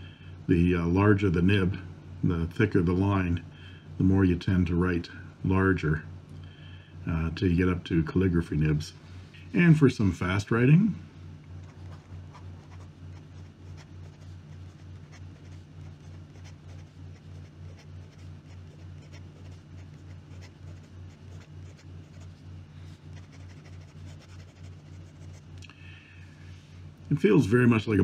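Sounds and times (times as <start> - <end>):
low pulsing hum: 0.0 - 28.0
fountain pen scratching paper: 11.7 - 22.4, 23.1 - 25.4.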